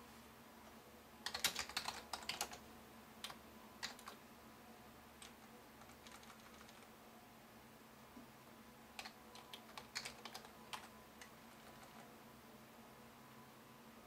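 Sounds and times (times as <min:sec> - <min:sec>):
computer keyboard keystrokes: 0:01.2 - 0:02.6, 0:03.2 - 0:04.2, 0:05.2 - 0:06.9, 0:09.0 - 0:12.1.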